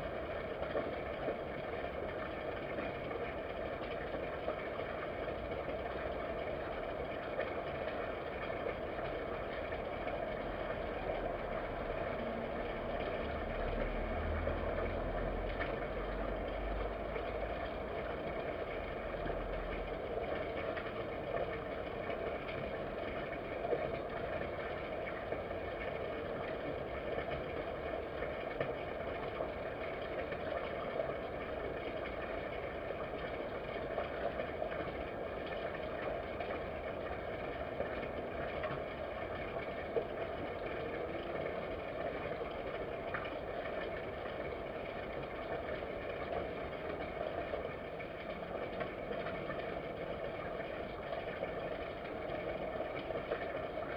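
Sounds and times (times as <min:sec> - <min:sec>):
low hum and hiss: 0:00.0 - 0:53.9.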